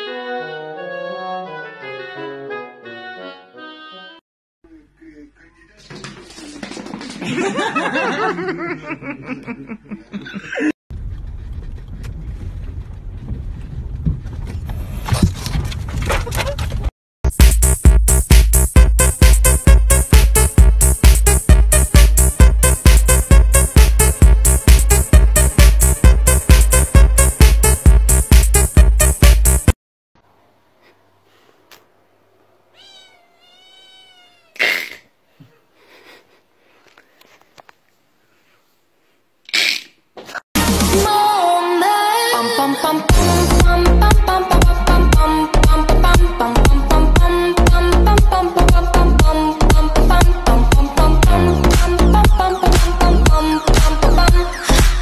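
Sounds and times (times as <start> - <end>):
person snickering: 7.4 - 10.8, 34.6 - 36.5
kitten meowing: 32.7 - 35.0.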